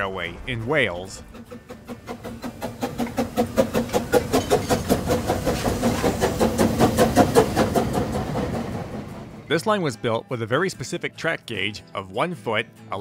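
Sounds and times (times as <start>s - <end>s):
steam locomotive chuffing: 0.0s - 10.2s.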